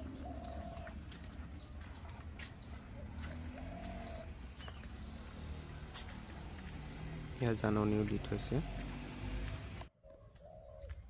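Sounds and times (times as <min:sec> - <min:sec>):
long low drawn-out calls: 0:02.9 - 0:04.4.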